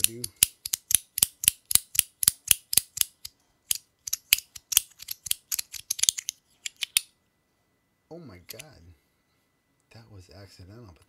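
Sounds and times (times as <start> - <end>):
fidget toy clicking: 0.0 - 7.1.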